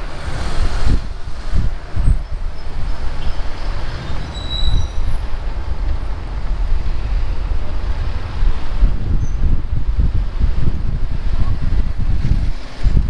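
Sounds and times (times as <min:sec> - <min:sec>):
vehicle engine and road rumble: 0:00.0 - 0:13.0
wind buffeting microphone: 0:00.0 - 0:13.0
high-pitched squeak: 0:02.1 - 0:05.2.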